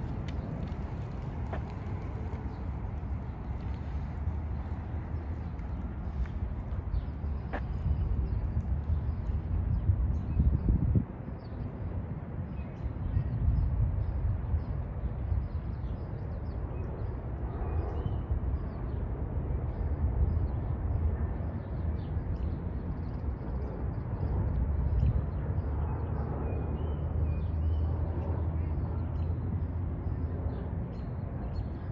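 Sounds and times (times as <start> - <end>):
electric scooter rumbling: 0.0 - 10.8.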